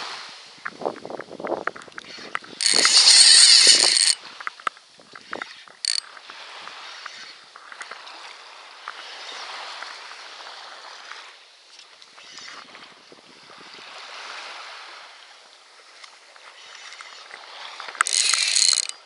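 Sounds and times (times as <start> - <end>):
fishing reel drag buzzing: 2.0 - 4.2, 5.3 - 6.5, 16.5 - 19.0.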